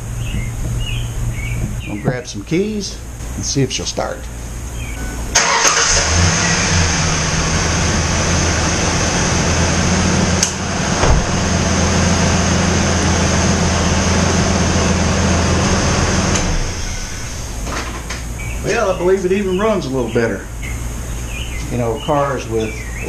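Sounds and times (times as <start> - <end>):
pickup engine cranking and idling: 4.2 - 19.4.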